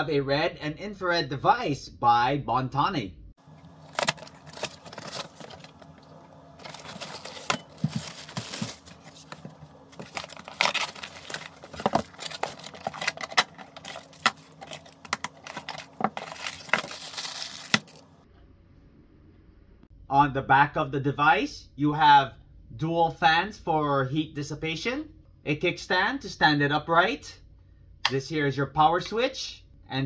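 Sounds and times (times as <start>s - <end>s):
cardboard and plastic bags rustling: 3.4s - 18.2s
bag of metal screws handled: 6.6s - 18.0s.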